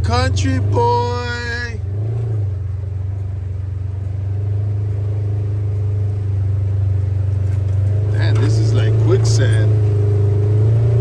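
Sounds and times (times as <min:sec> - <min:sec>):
utv engine running: 0:00.0 - 0:11.0.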